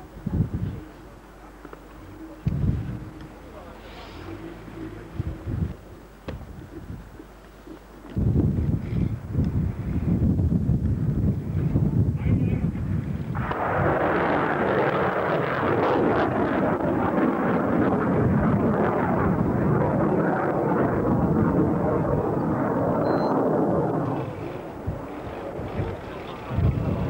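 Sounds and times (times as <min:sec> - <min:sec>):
wind buffeting microphone: 0:00.0 - 0:01.1, 0:02.0 - 0:27.0
rocket motor roar: 0:13.4 - 0:27.0.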